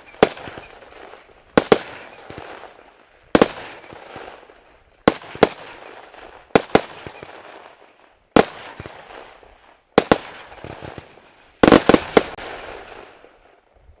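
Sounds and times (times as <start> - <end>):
firework bangs: 0.0 - 13.5
firework hiss: 8.4 - 13.4.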